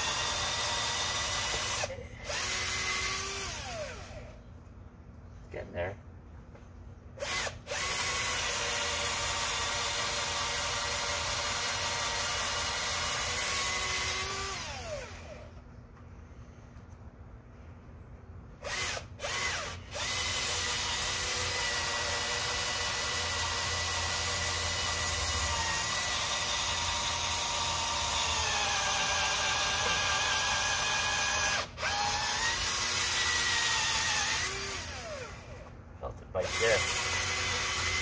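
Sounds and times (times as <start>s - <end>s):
power drill running: 0.0s - 4.4s, 7.2s - 15.5s, 18.6s - 35.7s, 36.4s - 38.0s.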